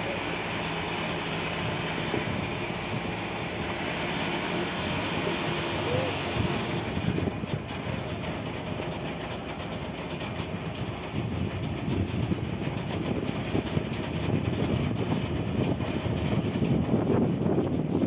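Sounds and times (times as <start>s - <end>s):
water noise: 0.0s - 9.2s
boat engine chugging: 0.0s - 18.0s
wind: 0.0s - 18.0s.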